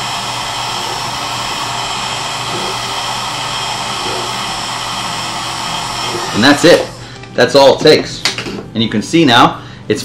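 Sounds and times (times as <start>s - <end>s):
heat gun blowing air: 0.0s - 7.2s.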